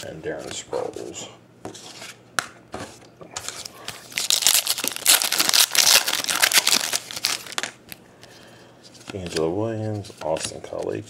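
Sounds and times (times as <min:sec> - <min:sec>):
foil wrapper tearing and crinkling: 0:04.1 - 0:07.8.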